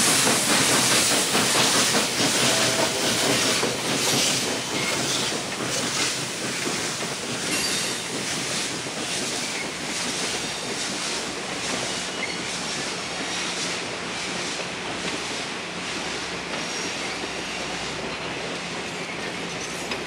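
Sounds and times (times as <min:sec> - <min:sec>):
steel wheels running on rails: 0:00.0 - 0:20.0
faint wheel squeals: 0:12.1 - 0:12.6.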